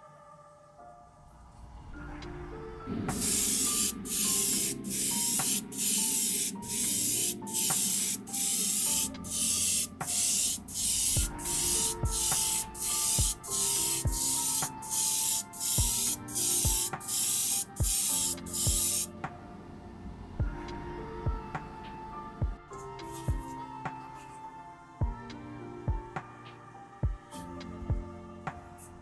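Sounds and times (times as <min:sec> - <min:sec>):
airbrush hissing: 0:03.1 - 0:19.1.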